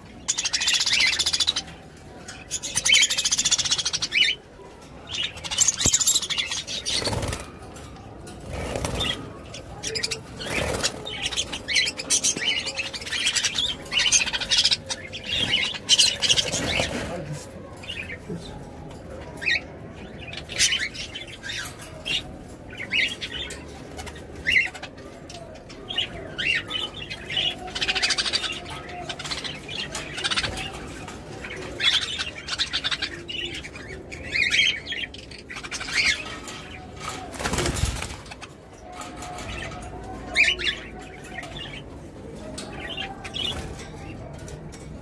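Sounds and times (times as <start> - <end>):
budgerigars chirping and warbling: 0.0 - 45.0
wings fluttering: 37.1 - 38.4.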